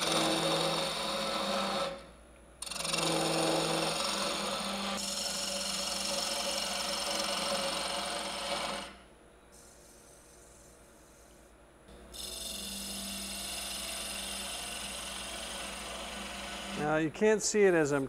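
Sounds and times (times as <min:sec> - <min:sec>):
gouge cutting wood on lathe: 0:00.0 - 0:09.0, 0:12.1 - 0:17.0
lathe low hum: 0:00.0 - 0:18.0.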